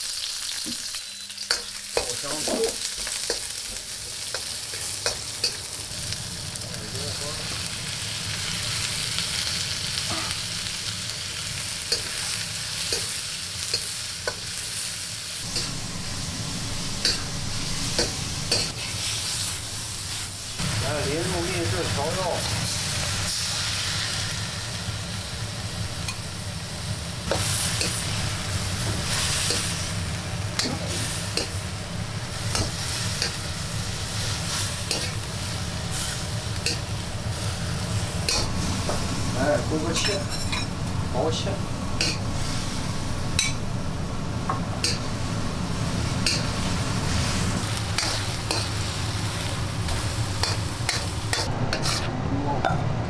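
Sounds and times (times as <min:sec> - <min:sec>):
food sizzling in a wok: 0:00.0 - 0:52.1
steady low hum: 0:15.4 - 0:21.2
metal spatula scraping wok: 0:39.8 - 0:40.7, 0:46.2 - 0:52.2.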